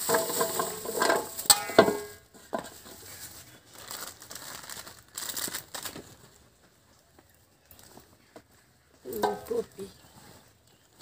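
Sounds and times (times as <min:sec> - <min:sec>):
plastic and paper rustling: 0:00.0 - 0:06.7.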